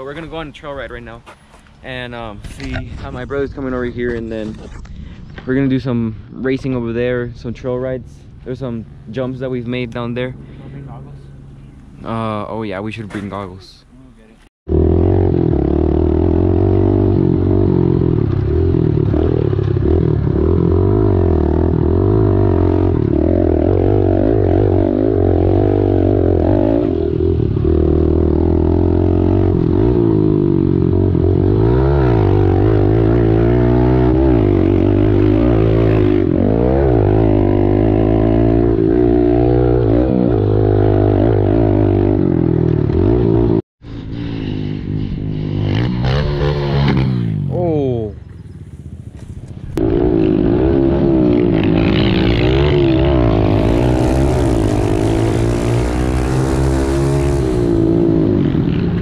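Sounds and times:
motorbike engine revving: 14.7s - 59.0s.

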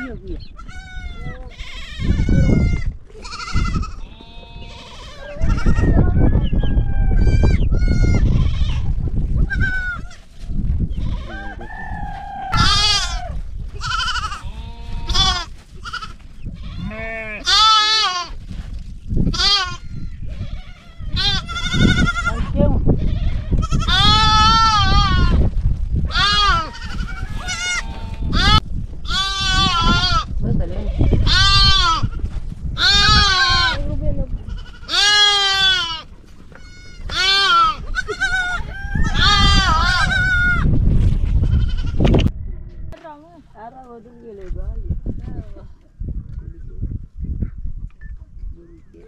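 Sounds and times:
sheep and goats bleating: 0.0s - 6.2s, 7.0s - 18.4s, 19.3s - 25.5s, 26.1s - 40.7s, 41.3s - 42.1s
heavy low rumble: 43.6s - 49.0s.

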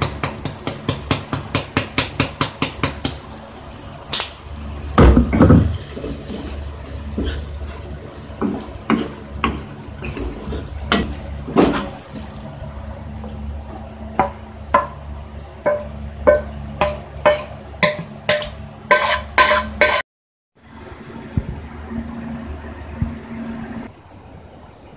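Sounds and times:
spatula stirring curry in pan: 6.0s - 11.2s, 15.6s - 20.0s
spatula knocking pan: 8.4s - 10.2s, 14.2s - 20.0s.

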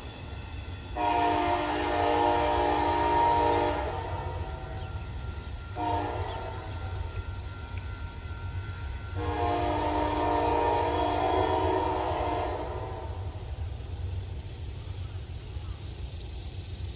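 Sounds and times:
train rumble: 0.0s - 16.9s
locomotive air horn: 0.9s - 7.2s, 7.8s - 13.4s.

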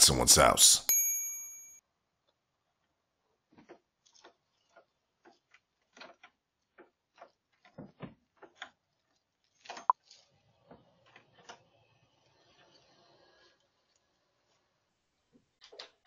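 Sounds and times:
sharp click with short ring: 0.9s - 1.8s.

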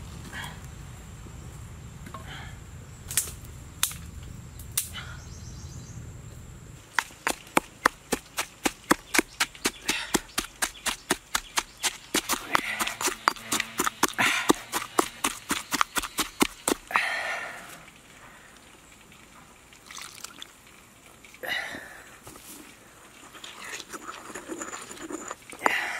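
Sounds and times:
fire cracks: 3.0s - 4.9s
stone pestle pounding in mortar: 7.0s - 16.9s.

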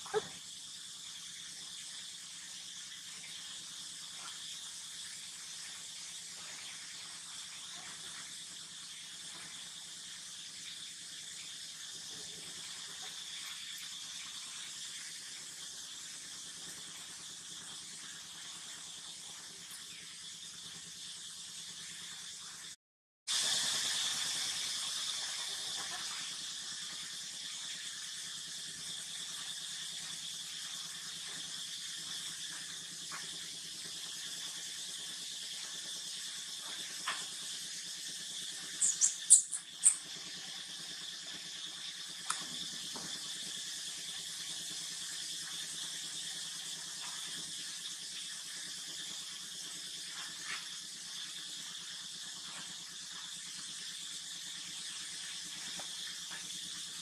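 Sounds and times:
short high-pitched squeaks: 38.8s - 40.0s.

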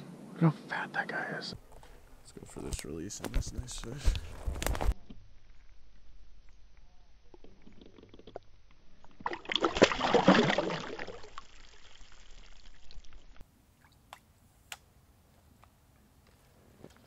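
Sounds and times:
fish splashing into water: 9.2s - 13.3s.

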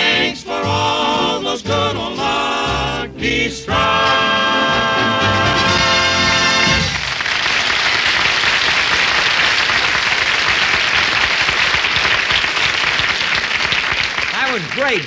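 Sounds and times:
audience applauding: 6.3s - 15.0s.

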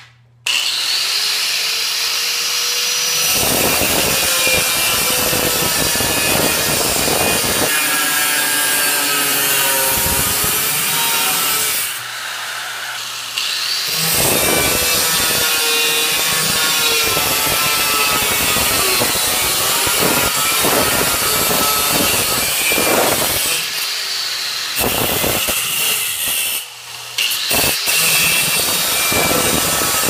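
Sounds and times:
angle grinder cutting steel: 0.5s - 30.0s.

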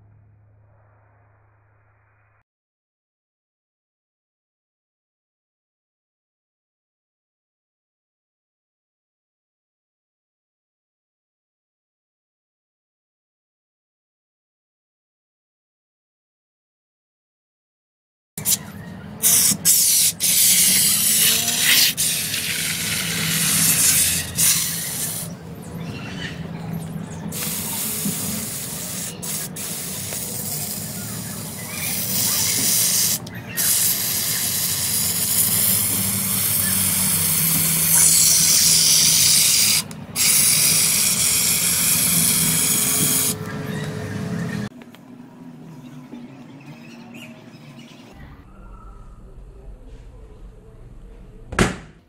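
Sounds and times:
aerosol can hissing: 19.2s - 25.4s, 27.3s - 43.4s.

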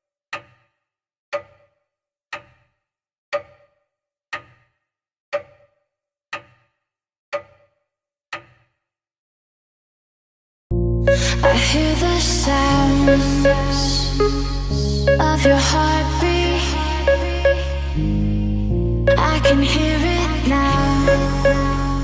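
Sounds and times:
clock-like ticking: 0.3s - 0.7s, 1.3s - 8.7s, 12.5s - 18.3s, 19.1s - 22.0s.

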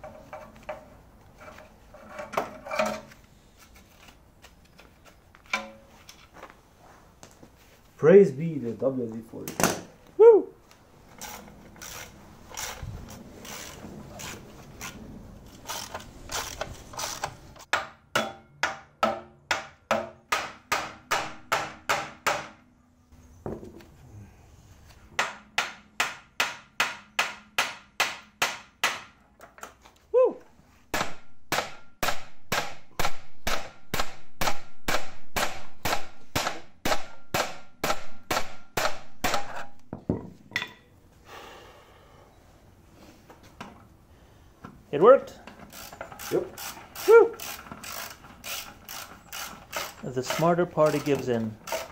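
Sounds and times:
hammer blows ringing on steel: 17.7s - 22.6s.

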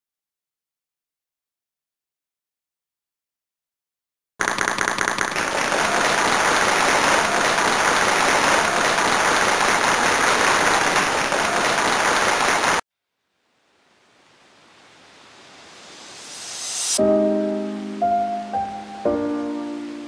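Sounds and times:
crowd applause: 4.4s - 12.8s
faint rising sound: 13.2s - 19.0s.

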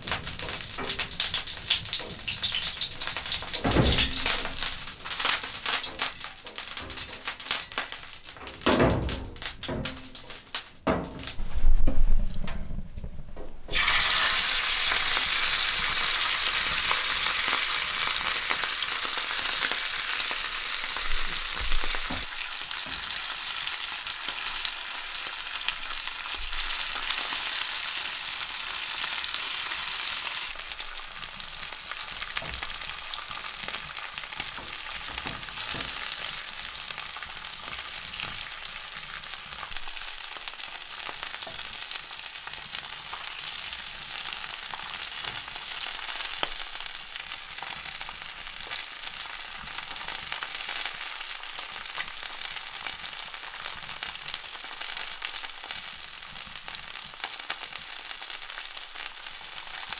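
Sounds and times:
meat sizzling in a grill pan: 0.0s - 10.8s, 13.7s - 59.9s.

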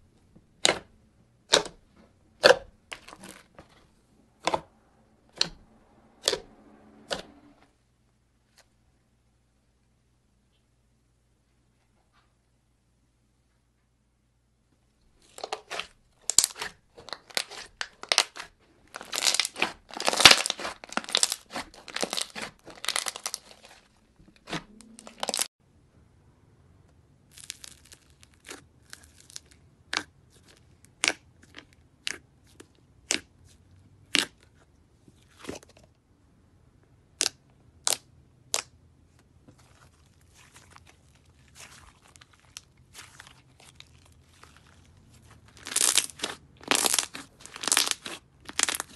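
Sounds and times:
slime crackling and popping: 15.2s - 25.5s, 27.3s - 32.2s, 37.2s - 38.7s, 39.6s - 48.9s.

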